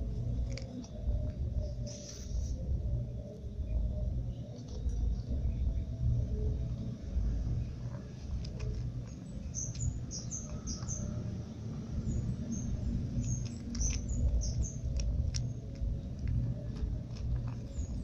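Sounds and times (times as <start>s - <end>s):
cat crunching dry kibble: 0.0s - 2.5s, 4.4s - 5.4s, 6.6s - 18.0s
low background rumble: 0.0s - 18.0s.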